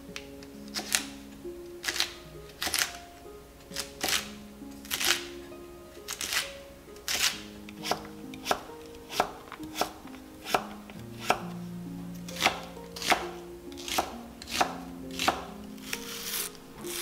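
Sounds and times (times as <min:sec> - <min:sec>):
soft background music: 0:00.0 - 0:17.0
knife chopping on wooden board: 0:07.1 - 0:11.6, 0:12.4 - 0:15.5.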